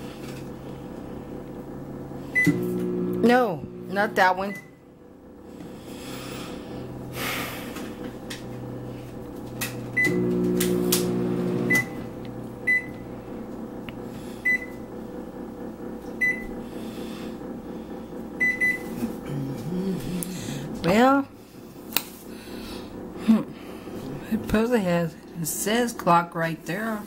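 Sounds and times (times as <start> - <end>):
microwave oven humming: 0.0 - 27.0
microwave keypad beeps: 11.6 - 12.0, 12.7 - 13.0, 14.4 - 14.8, 16.2 - 16.4, 18.4 - 18.9.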